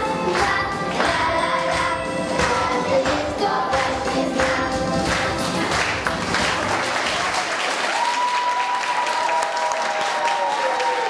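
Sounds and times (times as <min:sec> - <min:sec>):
song music: 0:00.0 - 0:07.3
audience applauding: 0:04.0 - 0:11.0.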